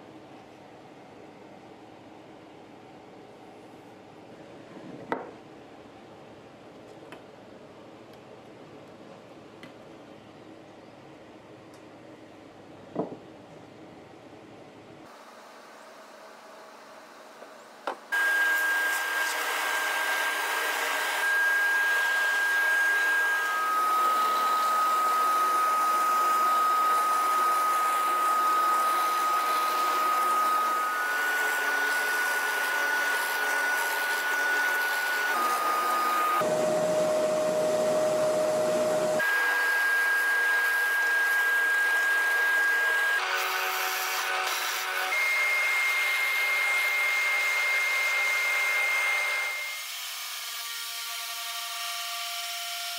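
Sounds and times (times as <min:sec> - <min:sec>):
dust extraction vacuum: 0:18.1 - 0:49.6
drill press cutting wood: 0:18.2 - 0:36.6.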